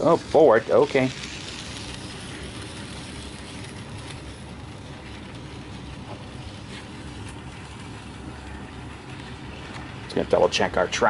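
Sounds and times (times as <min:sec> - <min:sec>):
model train motor hum: 0:00.0 - 0:11.0.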